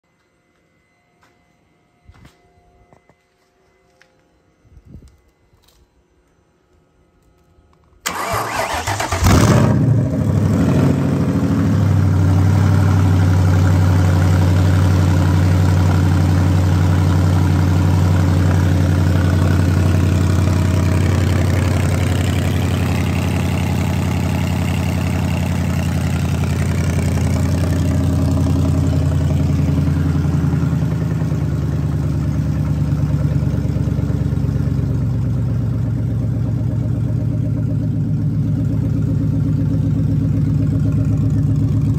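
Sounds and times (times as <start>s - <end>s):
car engine fast idle: 8.0s - 9.8s, 13.2s - 41.9s.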